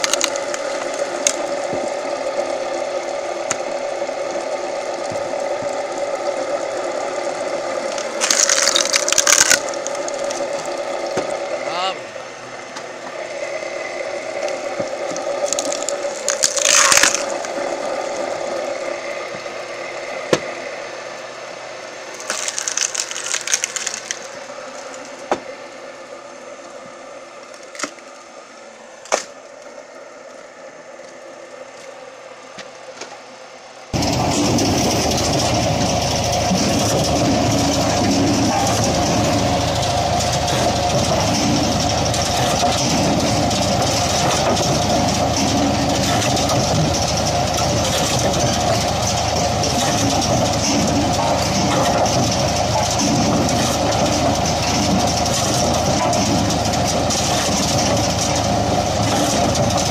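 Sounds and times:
sharp cracks and knocks: 0.0 - 1.5, 7.9 - 11.4, 15.1 - 17.6, 22.2 - 24.3, 27.5 - 28.1, 29.0 - 29.4
engine running: 0.0 - 59.9
machinery humming: 0.0 - 59.9.

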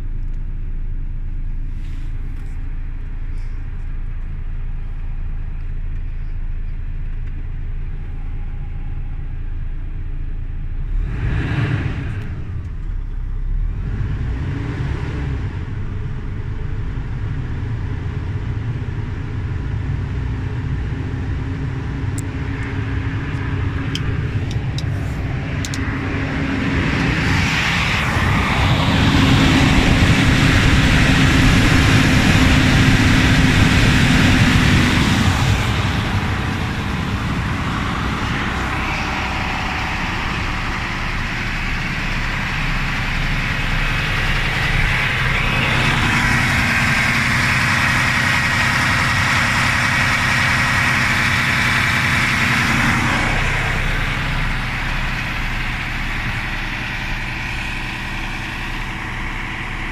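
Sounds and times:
truck diesel engine idling: 0.0 - 11.3, 15.2 - 59.9.

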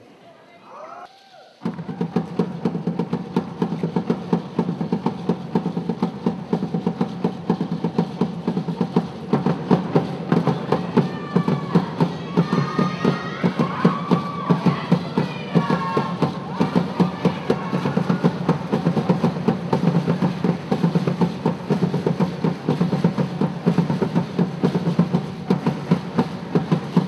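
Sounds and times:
hand drums playing fast rhythm: 1.6 - 27.0
voices singing: 10.6 - 18.6.

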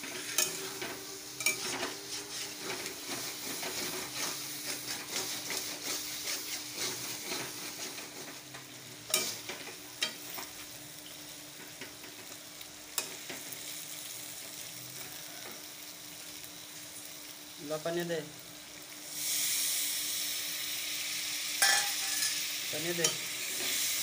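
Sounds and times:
spatula scraping a pan: 0.0 - 8.5
curry sizzling in a pan: 0.0 - 24.0.

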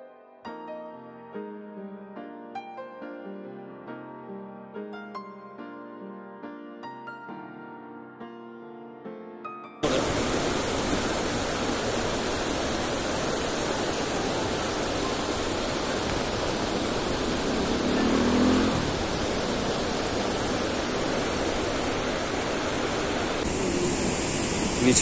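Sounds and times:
water rushing through sluice gates: 9.8 - 25.0.

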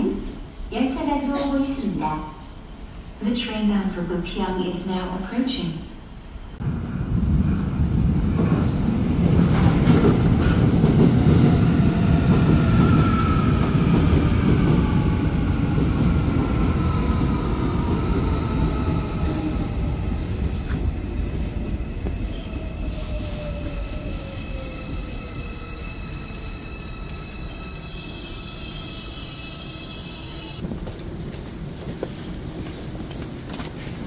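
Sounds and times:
train wheels rumbling on rails: 6.6 - 28.8.

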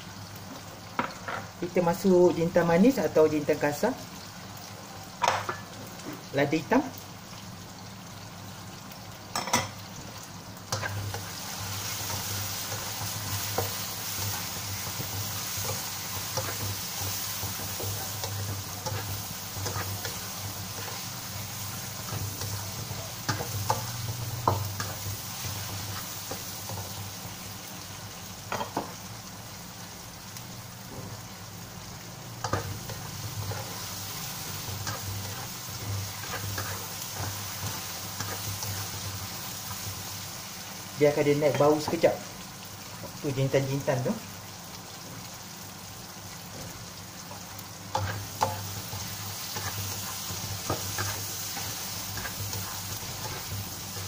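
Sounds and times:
food sizzling in oil: 0.0 - 54.0
spatula scraping pan: 10.7 - 27.0, 32.4 - 39.0, 48.0 - 54.0.

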